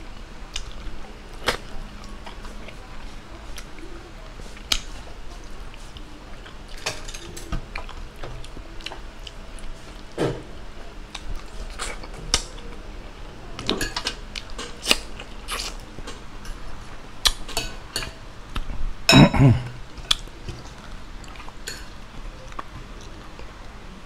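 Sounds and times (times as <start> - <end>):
chewing and lip smacks: 14.4 - 15.9.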